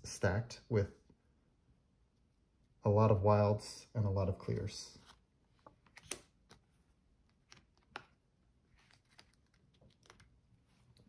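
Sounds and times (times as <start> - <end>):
playing cards clicking and tapping: 4.4 - 11.0.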